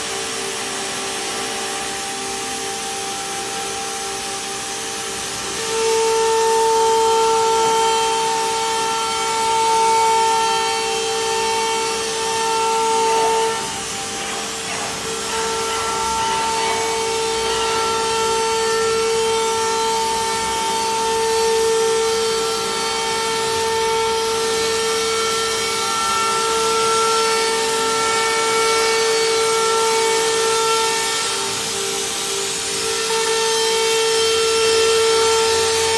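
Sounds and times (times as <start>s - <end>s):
router spindle high whine: 0.0s - 35.9s.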